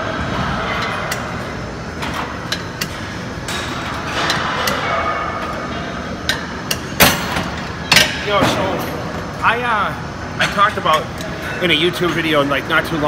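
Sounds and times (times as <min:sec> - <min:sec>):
busy weight room din: 0:00.0 - 0:13.0.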